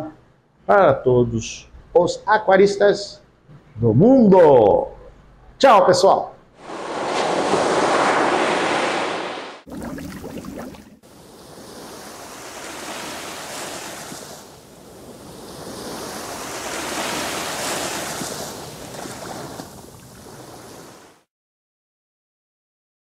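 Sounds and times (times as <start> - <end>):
ocean waves washing in: 6.6 - 21.3.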